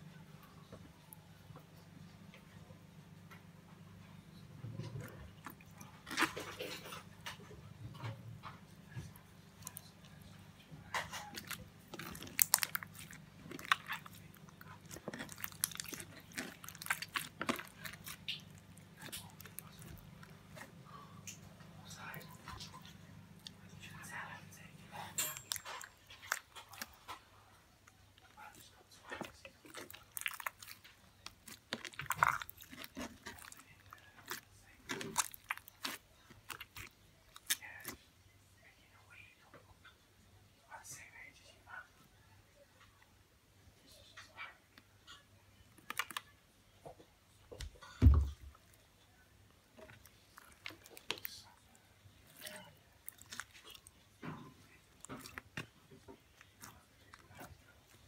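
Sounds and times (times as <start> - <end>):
slime squeezed with wet crackles: 10.9 - 20.1, 29.2 - 38.0, 49.8 - 54.0.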